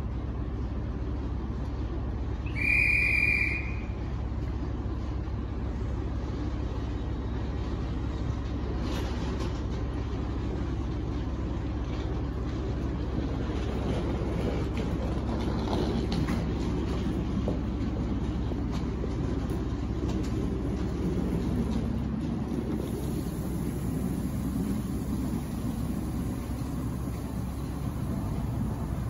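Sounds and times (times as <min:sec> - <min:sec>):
diesel engine idling: 0:00.0 - 0:08.8, 0:09.7 - 0:29.0
shrill whistle blast: 0:02.5 - 0:04.0.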